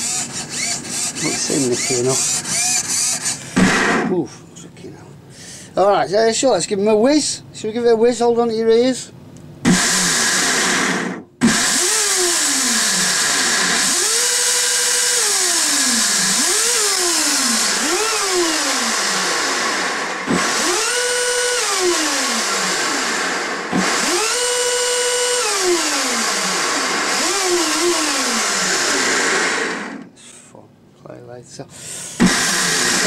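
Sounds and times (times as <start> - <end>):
electric motor whine: 0.0 - 4.1, 9.7 - 30.1, 32.2 - 33.0.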